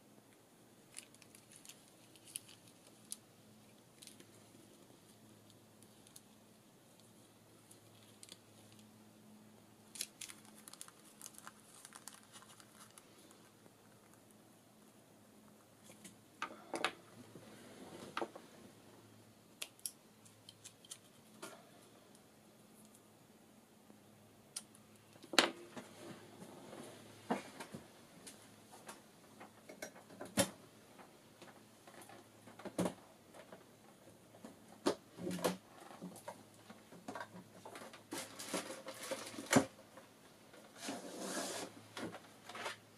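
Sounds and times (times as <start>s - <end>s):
low steady hum: 0.0s - 40.7s
paper rustling and crinkling: 0.9s - 3.2s, 9.9s - 14.2s.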